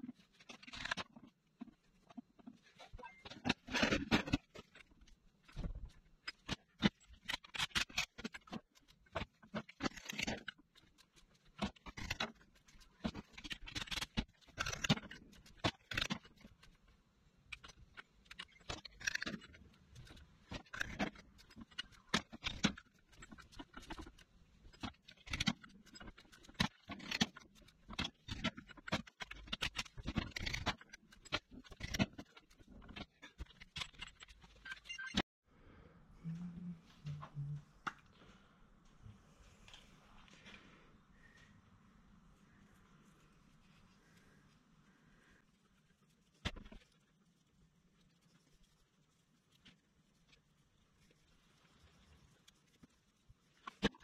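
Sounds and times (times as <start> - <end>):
metallic clicks and scrapes of tools: 0.0 - 35.2.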